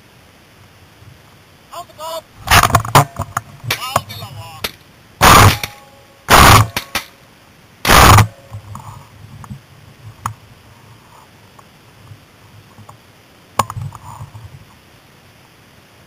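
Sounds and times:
loud shotgun shots: 0:02.4 - 0:03.1, 0:03.7 - 0:07.2, 0:07.8 - 0:08.4.

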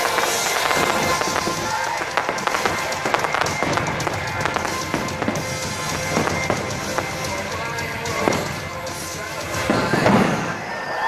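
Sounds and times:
fireworks bursting: 0:00.0 - 0:11.0
loud music soundtrack: 0:00.0 - 0:11.0.

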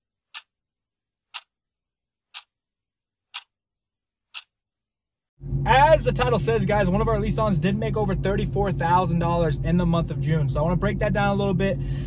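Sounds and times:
clock ticking: 0:00.3 - 0:00.5, 0:01.3 - 0:01.5, 0:02.3 - 0:02.5, 0:03.3 - 0:03.5, 0:04.3 - 0:04.5.

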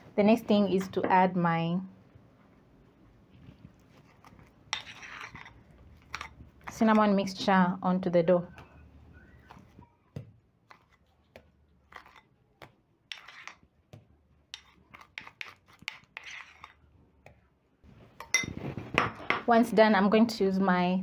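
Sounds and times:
spoon scraping ceramic bowl: 0:04.0 - 0:07.2, 0:11.9 - 0:12.3, 0:13.1 - 0:13.7, 0:14.5 - 0:16.9, 0:18.2 - 0:19.3.

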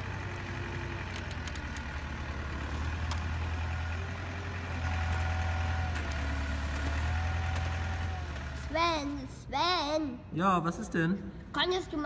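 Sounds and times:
heavy diesel engine running: 0:00.0 - 0:09.2.

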